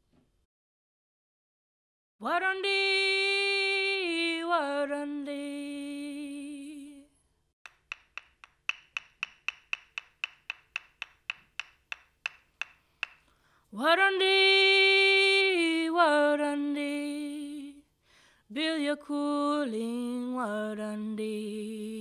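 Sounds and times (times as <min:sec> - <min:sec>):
woman singing: 0:02.2 - 0:07.1, 0:13.7 - 0:17.9, 0:18.5 - 0:22.0
wooden clapsticks clicking: 0:07.7 - 0:13.3.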